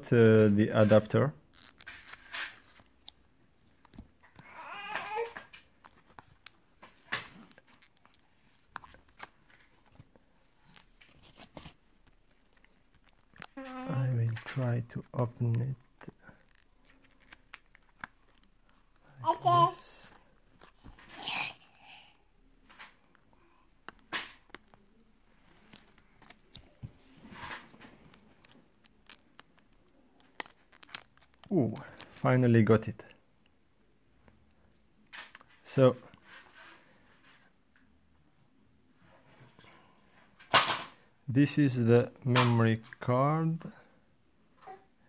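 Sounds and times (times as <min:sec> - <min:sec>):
plastic rustling: 0:00.7 - 0:19.0, 0:24.0 - 0:32.3
plastic packaging crinkling: 0:01.5 - 0:03.1, 0:10.6 - 0:18.8, 0:25.4 - 0:32.3.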